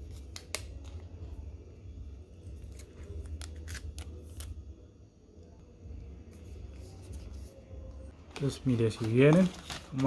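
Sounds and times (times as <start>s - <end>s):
plastic film crinkling: 8.3s - 10.0s.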